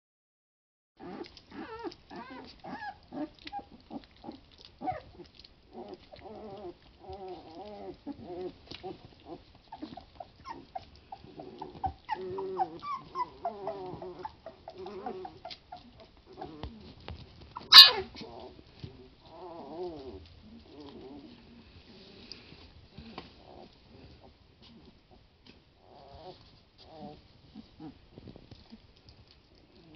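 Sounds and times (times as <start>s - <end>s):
puppies whimpering and grunting: 1.0s - 29.9s
wet eating clicks: 1.2s - 12.2s
puppy squealing loudly: 17.6s - 18.2s.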